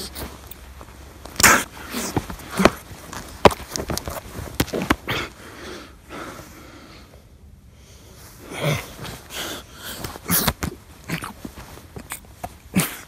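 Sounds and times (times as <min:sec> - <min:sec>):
heavy strained breathing: 0:01.4 - 0:03.0, 0:04.7 - 0:13.0.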